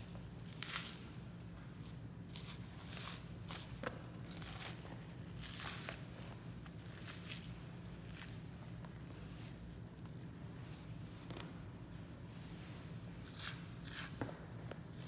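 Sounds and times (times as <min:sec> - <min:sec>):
steady low hum: 0:00.0 - 0:15.0
fat tearing by hand: 0:13.2 - 0:14.2.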